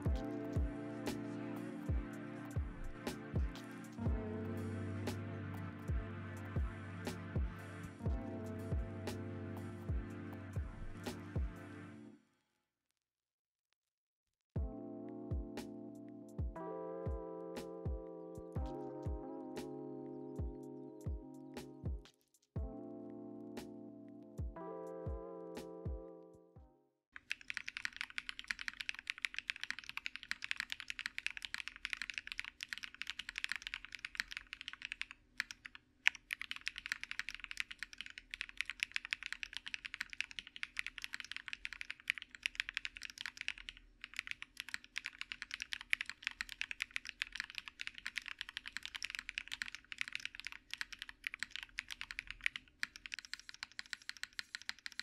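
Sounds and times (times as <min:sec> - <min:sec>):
mechanical keyboard typing: 0:27.2 - 0:55.0.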